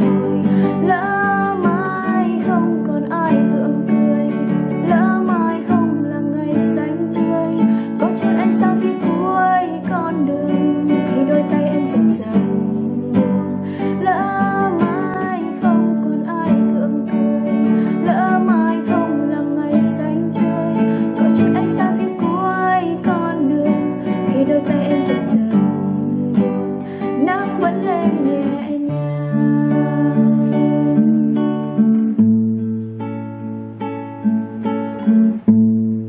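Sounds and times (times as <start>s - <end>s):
fingerstyle classical guitar: 0.0s - 36.0s.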